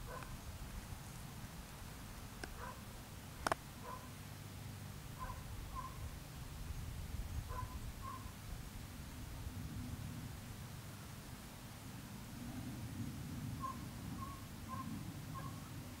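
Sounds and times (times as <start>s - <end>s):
short bird calls: 13.6s - 15.6s.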